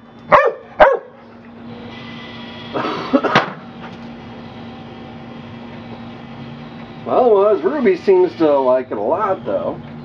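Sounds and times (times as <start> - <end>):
ball launcher motor humming: 0.0 - 10.0
dog barking: 0.3 - 1.2.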